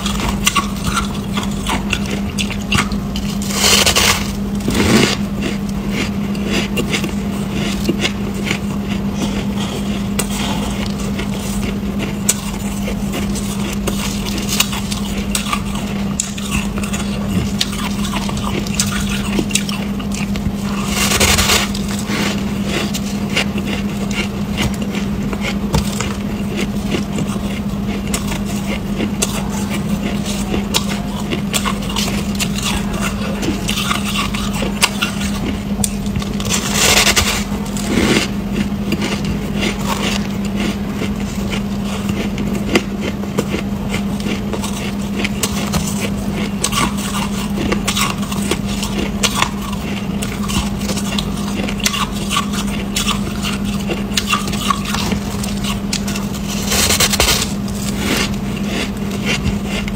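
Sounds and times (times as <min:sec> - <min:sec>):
ice being crunched by teeth: 0:00.0 - 0:05.2, 0:12.0 - 0:22.1
steady low hum: 0:00.0 - 0:59.9.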